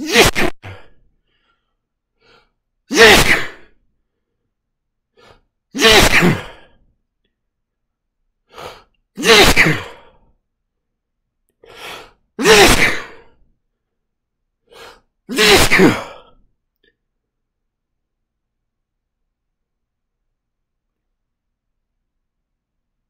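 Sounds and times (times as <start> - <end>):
man sneezing: 0.0 - 1.0, 2.9 - 3.8, 5.7 - 6.8, 9.2 - 10.1, 12.4 - 13.3, 15.3 - 16.3
short breath in: 0.7 - 2.6, 5.1 - 5.5, 8.5 - 8.9, 11.6 - 12.2.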